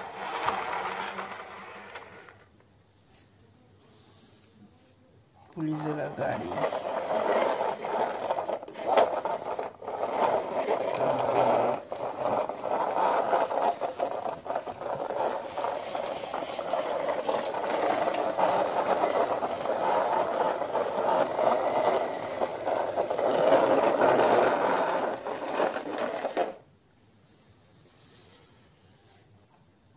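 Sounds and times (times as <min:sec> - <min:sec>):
plastic toy car rattling on floor: 0:00.0 - 0:02.6, 0:05.5 - 0:26.7.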